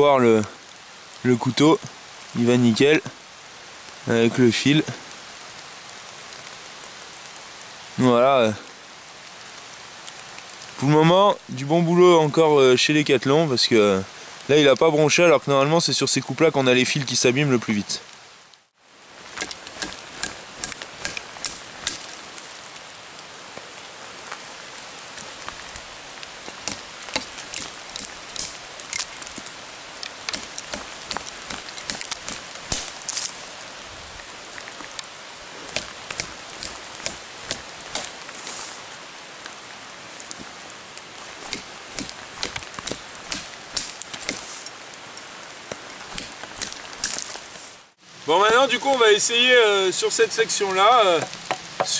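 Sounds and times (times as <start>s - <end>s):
rain hiss in forest: 0.0s - 51.9s
water drips ticking: 19.3s - 22.2s, 25.2s - 32.8s, 35.7s - 38.2s.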